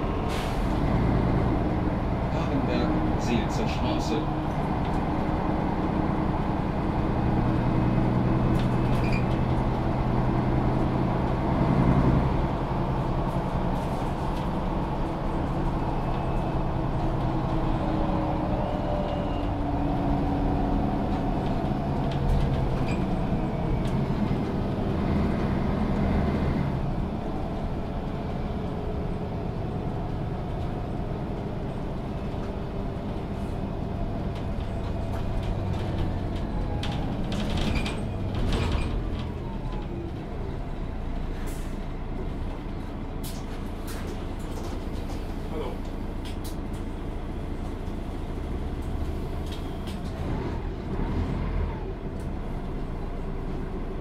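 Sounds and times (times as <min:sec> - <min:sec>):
bus diesel engine running: 0:00.0 - 0:54.0.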